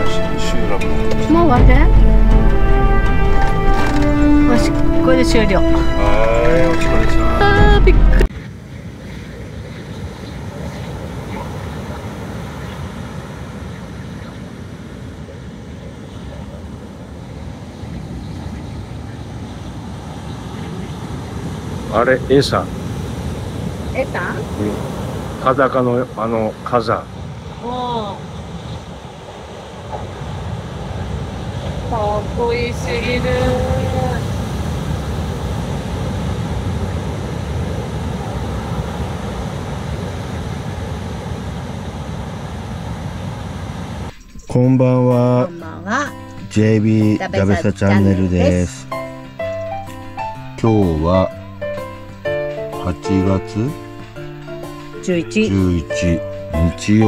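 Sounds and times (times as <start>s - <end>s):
road and engine rumble in van: 35.1s - 44.2s.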